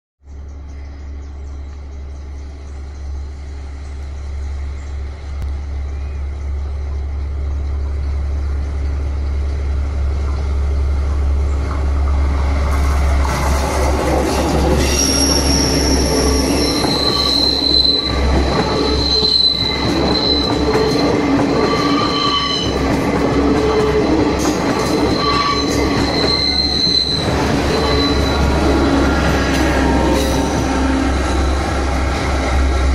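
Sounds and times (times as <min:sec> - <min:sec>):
train rumble: 0:00.3 - 0:32.9
steel wheels squealing: 0:14.1 - 0:22.9, 0:23.5 - 0:32.1.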